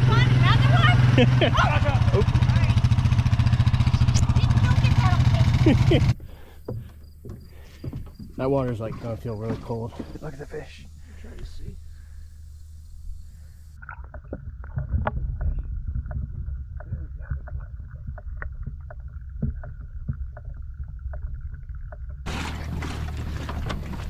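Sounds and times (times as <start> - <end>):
water splashing: 7.5 - 24.0
underwater rumble with bubbling: 8.5 - 24.0.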